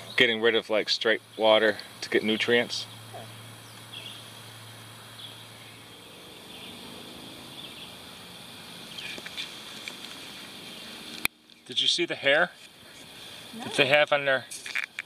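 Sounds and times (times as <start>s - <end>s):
low hum: 0.0s - 11.8s
steady hiss: 0.0s - 15.0s.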